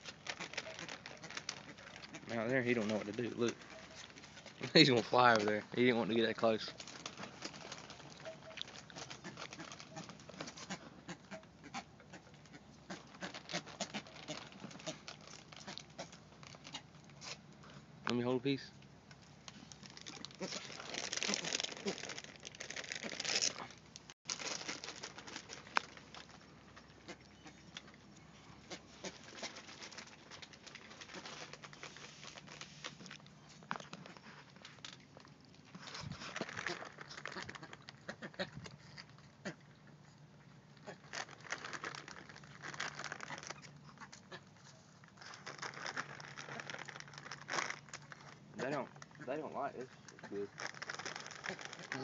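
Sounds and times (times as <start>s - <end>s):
bird bills pecking clatter: 0.0s - 16.9s
birds pecking rapid clicking: 6.2s - 10.9s.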